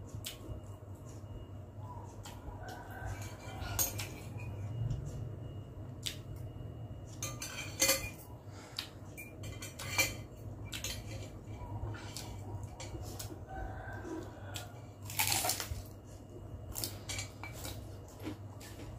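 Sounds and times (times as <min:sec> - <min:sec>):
low steady hum: 0:00.0 - 0:18.9
cutlery clinking on glass bowl: 0:07.1 - 0:08.3, 0:09.2 - 0:11.4.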